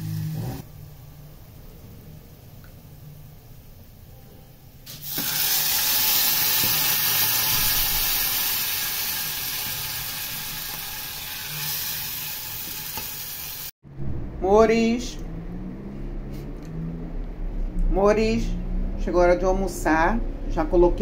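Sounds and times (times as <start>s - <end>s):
loud sizzle of hot oil: 0.0s - 0.7s, 4.8s - 13.8s.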